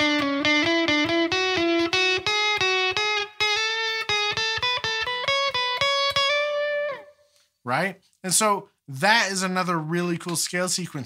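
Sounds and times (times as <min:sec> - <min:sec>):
electric guitar playing a scale: 0:00.0 - 0:07.4.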